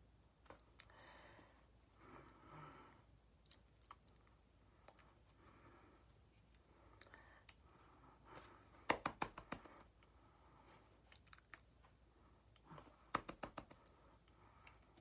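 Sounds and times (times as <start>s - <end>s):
hands tapping and slapping: 8.3s - 9.9s, 12.7s - 14.0s.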